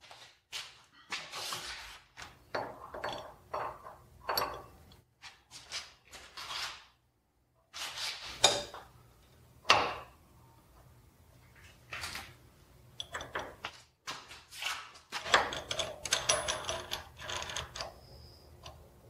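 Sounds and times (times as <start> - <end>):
metal clamp parts clinking: 15.2 - 18.1.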